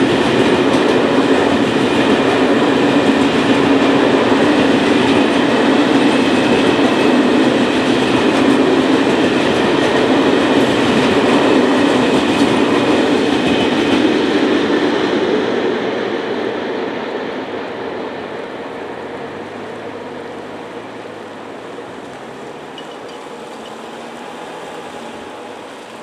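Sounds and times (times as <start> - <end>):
freight train rolling past: 0.0 - 26.0.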